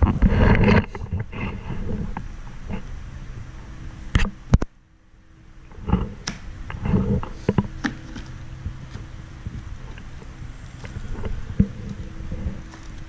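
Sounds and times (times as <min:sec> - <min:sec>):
faint low hum: 0:00.0 - 0:13.0
plastic case rubbing: 0:05.8 - 0:13.0.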